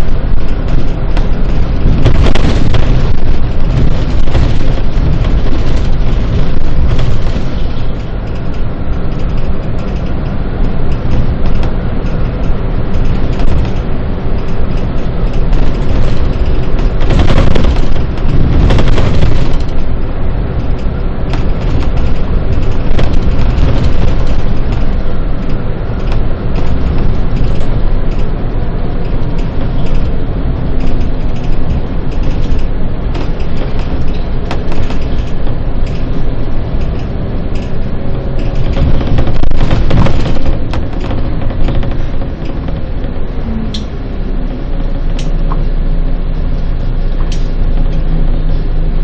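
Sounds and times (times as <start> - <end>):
bus engine and road rumble: 0.0 - 49.0.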